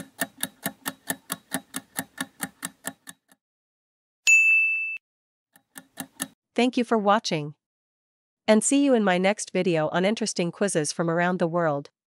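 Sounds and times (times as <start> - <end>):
clock-like timer ticks: 0.0 - 3.4, 5.6 - 6.4.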